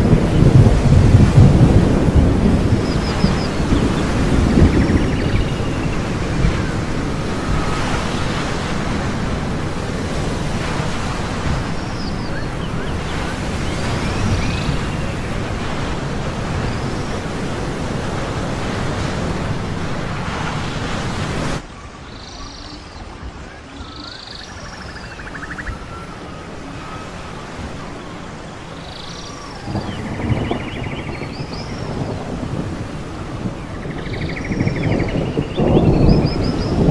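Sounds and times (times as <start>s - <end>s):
surf rushing: 0.0s - 22.1s, 23.0s - 36.9s
wind: 0.0s - 36.9s
high chirping calls: 2.7s - 8.4s, 11.6s - 15.6s, 22.0s - 32.4s, 33.2s - 36.9s.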